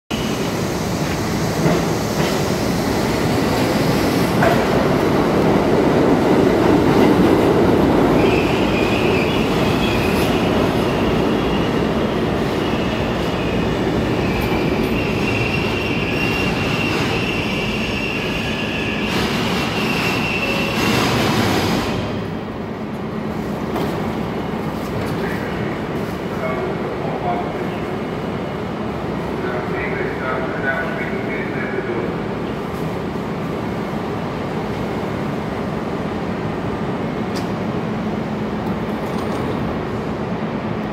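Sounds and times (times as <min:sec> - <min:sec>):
train wheels rumbling on rails: 0:00.1 - 0:40.9
high brake squeal: 0:12.8 - 0:21.2.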